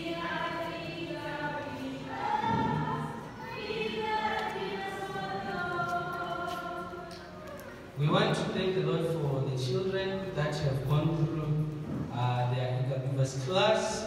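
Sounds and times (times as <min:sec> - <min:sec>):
choir singing long notes: 0:00.0 - 0:07.6.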